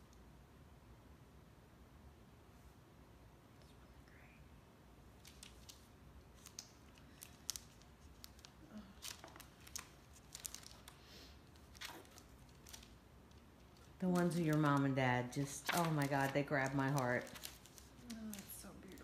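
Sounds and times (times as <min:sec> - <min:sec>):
photo prints rustling and crinkling: 0:05.1 - 0:19.0.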